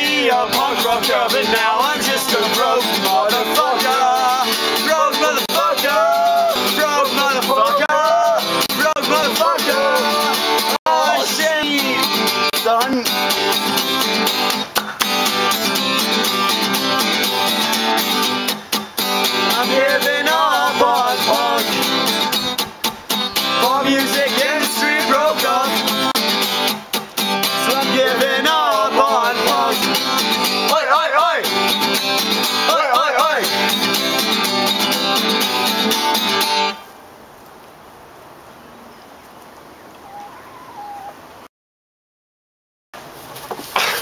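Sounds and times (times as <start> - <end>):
man singing: 0.0 - 13.2, 19.4 - 22.2, 23.5 - 26.2, 27.5 - 31.6, 32.4 - 34.0
acoustic guitar strumming: 0.0 - 36.9.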